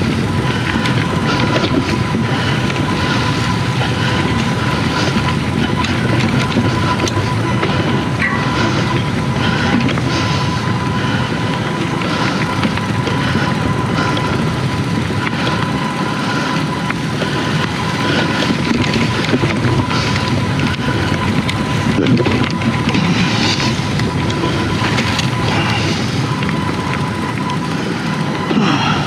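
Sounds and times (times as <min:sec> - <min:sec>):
faint high whine: 0:00.0 - 0:29.0.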